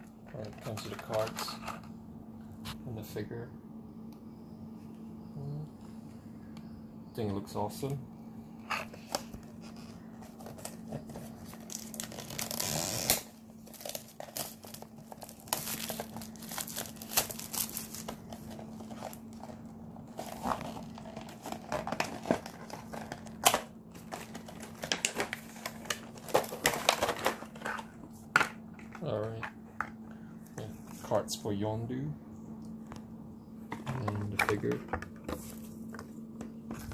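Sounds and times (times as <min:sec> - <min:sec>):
plastic wrap crinkling: 0:09.0 - 0:27.9.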